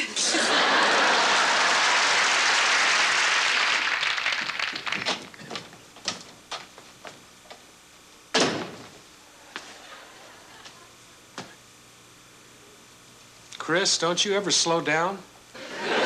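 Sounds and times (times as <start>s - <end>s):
audience applause: 0.0s - 5.6s
door shutting: 8.3s - 9.0s.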